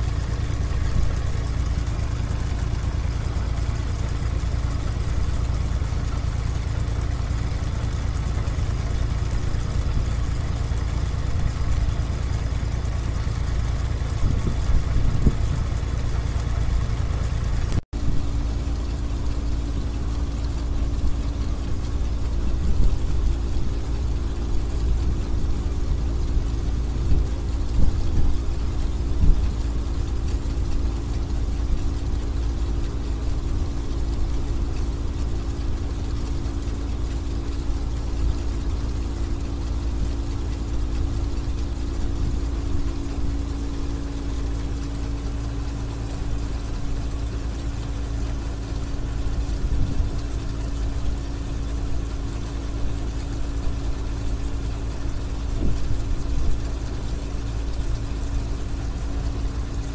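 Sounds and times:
diesel engine rumbling: 0.0 - 59.9.

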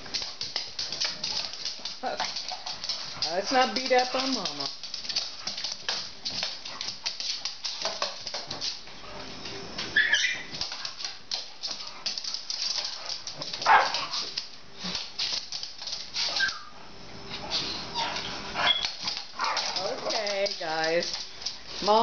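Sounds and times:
dog claws clicking on floor: 0.0 - 8.9, 10.0 - 16.6, 18.0 - 22.0
dog whining: 10.0 - 10.5, 16.3 - 16.8, 17.5 - 19.7
dog barking: 13.6 - 14.2.

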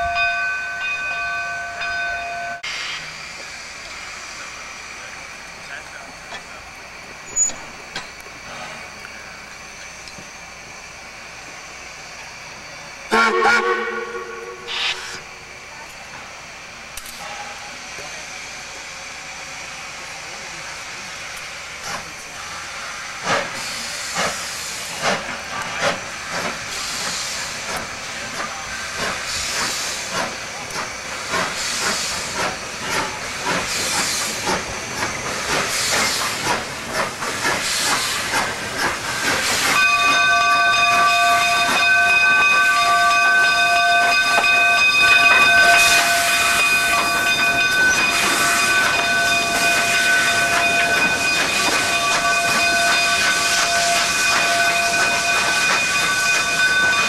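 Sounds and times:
steam locomotive exhaust chuffing: 0.0 - 57.0
steady hiss of steam: 2.6 - 57.0
steam blow with whistle tones: 13.1 - 15.4, 39.1 - 57.0.

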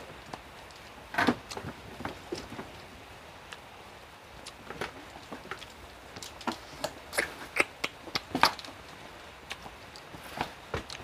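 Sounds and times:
eating smacks: 6.8 - 8.6.

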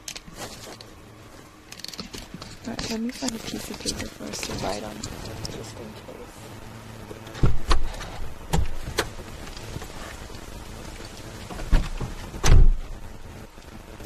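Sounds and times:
car door shutting: 7.0 - 10.1, 11.4 - 12.8
knocks and thumps inside car: 7.3 - 9.9, 11.4 - 12.8.

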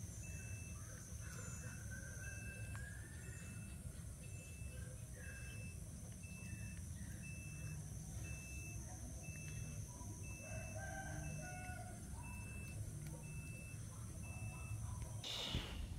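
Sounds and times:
high electronic beep: 2.2 - 11.6, 12.2 - 15.7
steady low rumble: 12.0 - 15.9.

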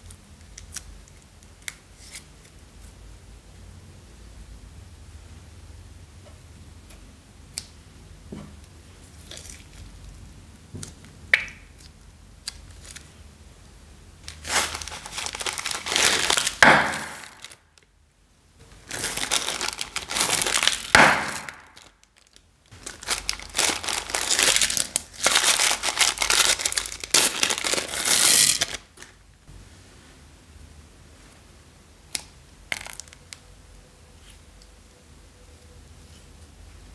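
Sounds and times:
plastic bags crinkling: 14.3 - 17.8, 18.7 - 29.2, 32.7 - 33.2.

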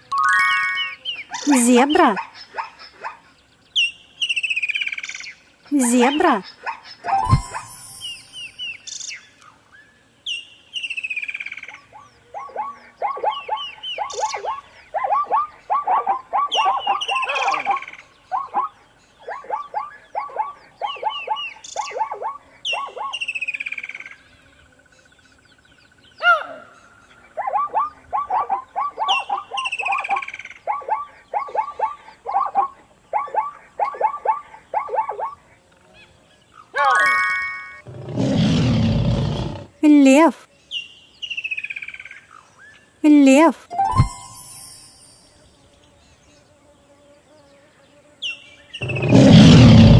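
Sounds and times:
zebra yelping barks: 12.3 - 23.2, 27.4 - 35.5.

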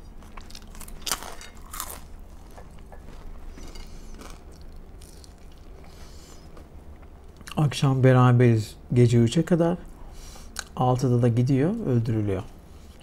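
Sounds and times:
soft chewing: 0.0 - 7.6
faint low hum: 0.0 - 13.0.

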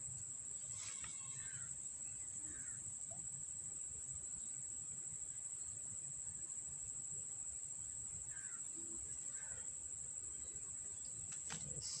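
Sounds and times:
faint chirps: 0.0 - 3.5, 8.2 - 12.0
insects buzzing: 0.0 - 12.0.

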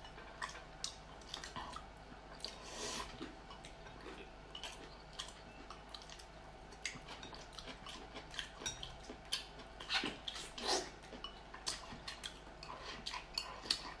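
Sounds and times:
chewing and mouth sounds: 0.0 - 14.0.

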